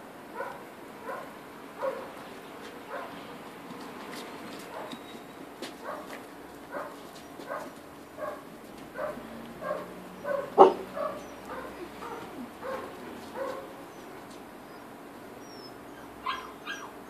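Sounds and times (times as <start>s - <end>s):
puppy yapping: 5.8s - 14.1s, 14.7s - 17.0s.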